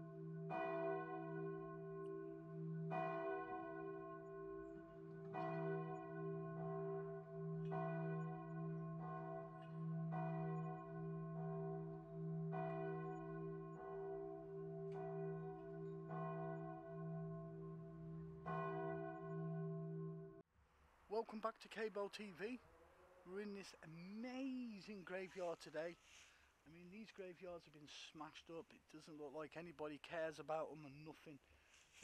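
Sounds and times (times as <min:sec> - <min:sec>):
church bell tolling: 0:00.0 - 0:20.4.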